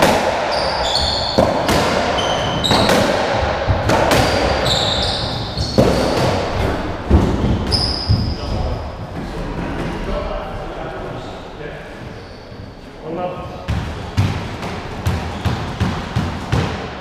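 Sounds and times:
ball hitting rackets and walls: 0:00.0 - 0:10.1, 0:13.6 - 0:17.0
trainers squeaking on wooden floor: 0:00.5 - 0:03.0, 0:03.8 - 0:10.0, 0:11.8 - 0:15.8.

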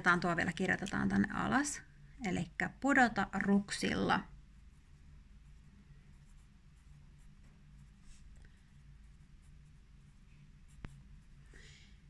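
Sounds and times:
low room hum: 0:00.0 - 0:12.0
pencil scratching on paper: 0:04.6 - 0:11.4.

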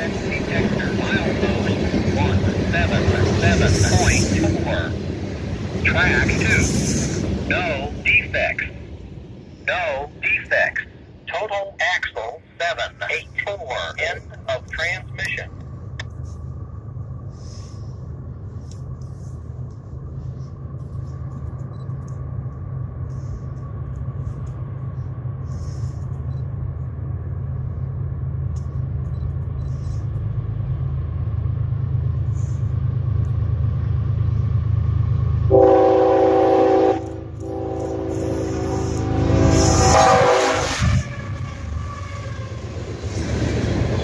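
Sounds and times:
locomotive engine rumble: 0:00.0 - 0:44.0
train air horn: 0:35.5 - 0:42.3.

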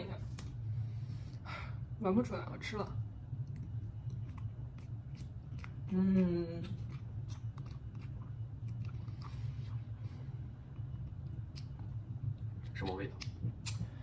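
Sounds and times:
steady low hum: 0:00.0 - 0:14.0
wet mouth clicks and smacks: 0:12.7 - 0:14.0.

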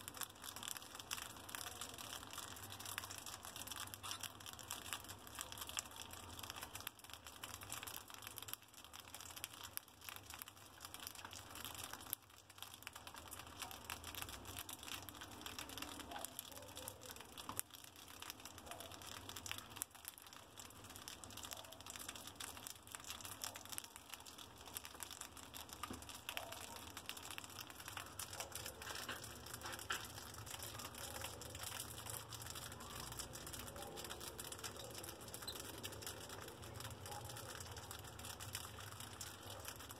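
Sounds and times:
mice crunching dry food: 0:00.0 - 0:39.9.

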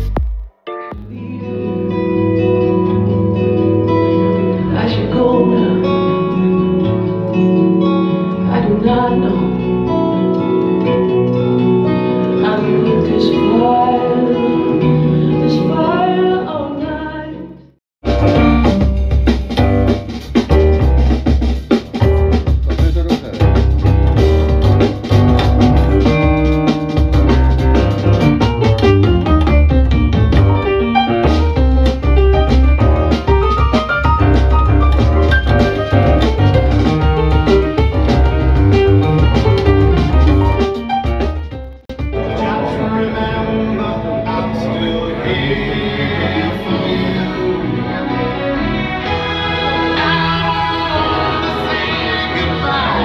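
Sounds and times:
rhythmic track with heavy bass: 0:00.0 - 0:01.2, 0:18.0 - 0:47.5
melodic music over loudspeakers: 0:23.6 - 0:53.0.

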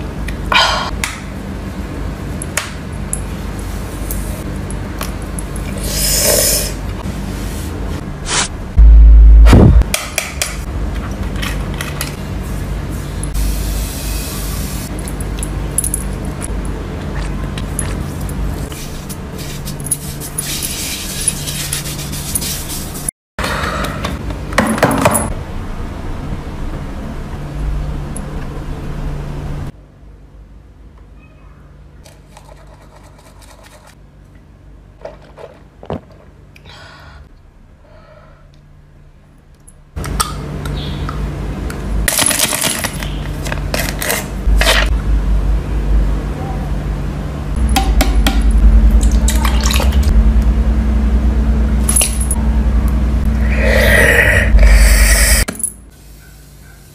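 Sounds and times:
steady low hum: 0:00.0 - 0:24.6, 0:43.4 - 0:55.9.

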